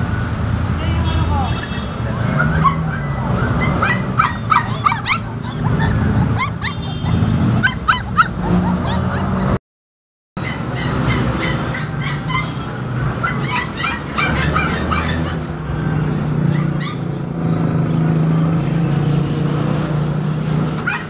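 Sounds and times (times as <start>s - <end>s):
puppies whimpering and yipping: 2.3s - 9.6s, 10.4s - 15.6s, 16.4s - 17.2s, 20.7s - 21.0s.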